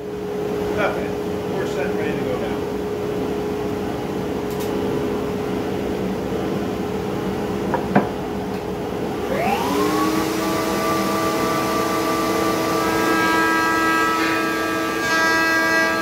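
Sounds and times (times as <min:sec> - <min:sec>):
dust extractor running: 0:09.0 - 0:16.0
router motor whining: 0:09.2 - 0:16.0.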